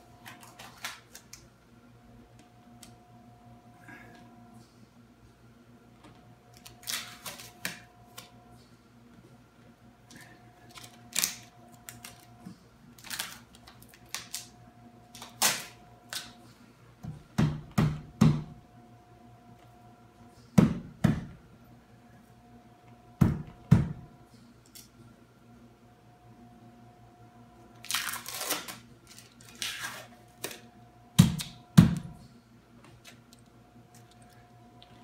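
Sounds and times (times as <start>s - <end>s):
hands slapping tape down: 0.2s - 1.4s, 31.2s - 32.1s.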